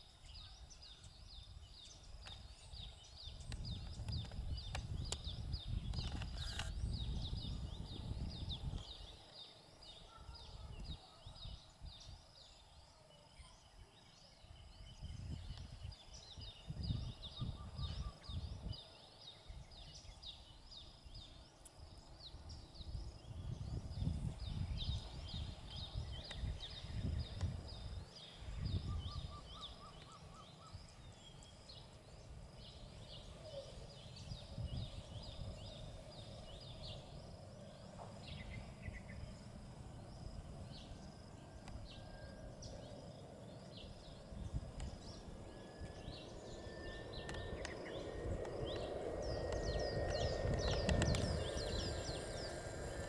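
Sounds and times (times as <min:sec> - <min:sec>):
airliner engines rumbling and whining: 0:00.0 - 0:53.0
small birds chirping: 0:00.0 - 0:53.0
low outdoor rumble: 0:14.4 - 0:53.0.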